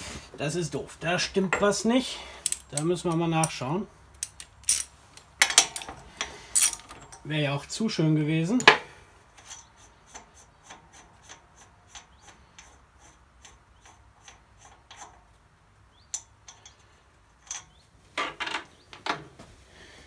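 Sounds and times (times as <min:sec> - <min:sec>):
gear scraping on engine housing: 0:09.3 - 0:15.4.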